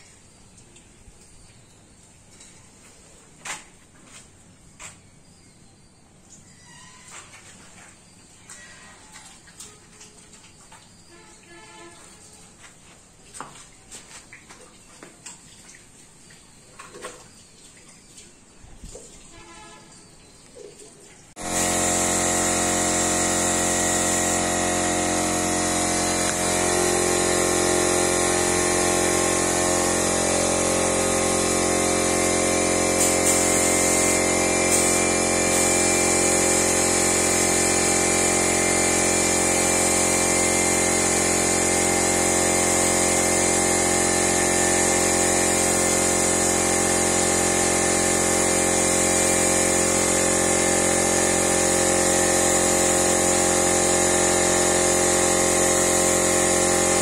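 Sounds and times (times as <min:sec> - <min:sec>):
air compressor running: 0:21.4 - 0:57.0
spray gun hissing: 0:21.4 - 0:57.0.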